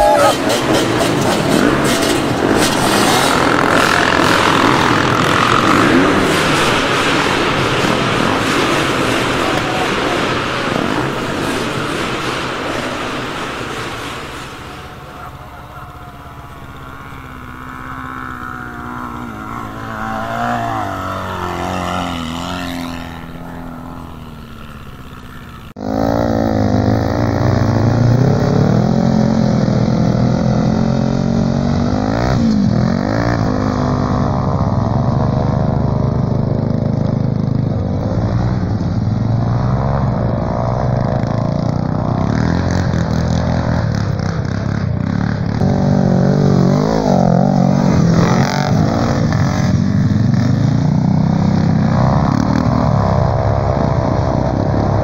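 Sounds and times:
quad bike engines revving: 0.0 - 55.0.

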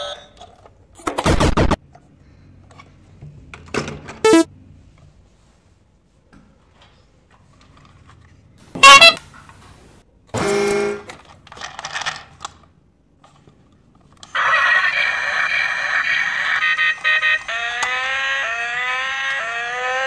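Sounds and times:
continuous electronic sound: 1.3 - 1.8, 4.2 - 4.5, 14.4 - 20.0
loud short electronic sound: 4.3 - 4.5
toy horn toot: 4.3 - 4.5, 8.8 - 9.2, 16.0 - 20.0.

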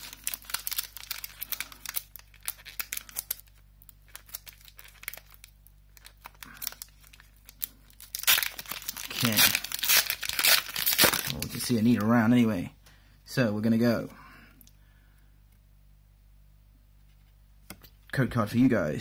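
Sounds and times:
foil wrapper crinkling and tearing: 0.0 - 12.1.

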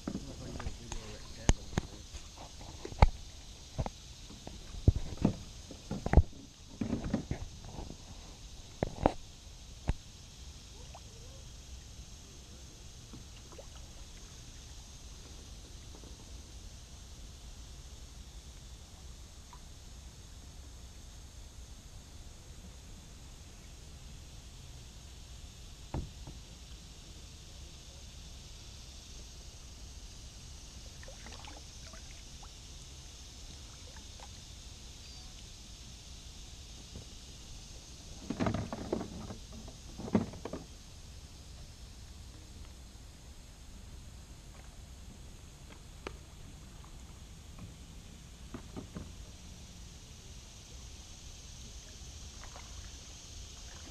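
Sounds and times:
steady background hiss: 0.0 - 53.9
paddle splashing water: 31.0 - 32.3, 52.3 - 53.9.

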